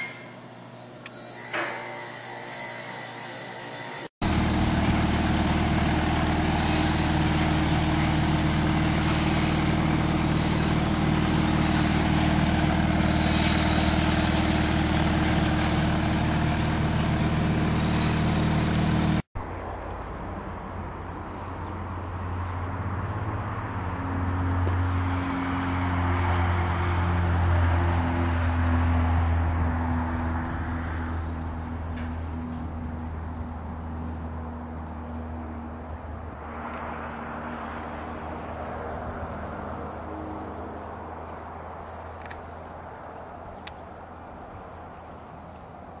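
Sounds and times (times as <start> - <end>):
vehicle engine running: 4.2 - 19.3
low hum: 4.2 - 22.7.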